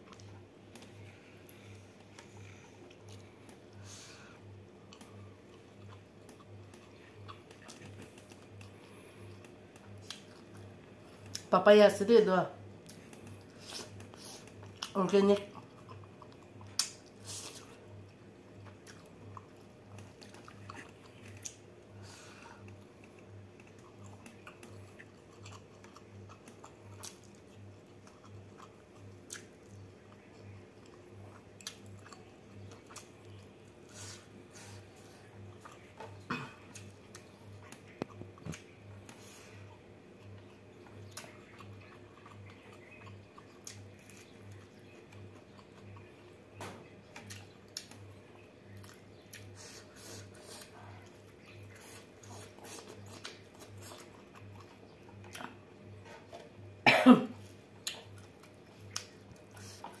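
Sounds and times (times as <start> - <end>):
soft chewing: 0.0 - 11.6, 12.5 - 60.0
person coughing: 36.3 - 36.7, 56.8 - 57.4.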